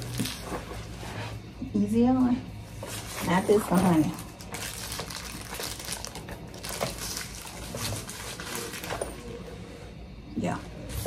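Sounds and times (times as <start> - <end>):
bag rustling and crinkling: 2.8 - 9.4.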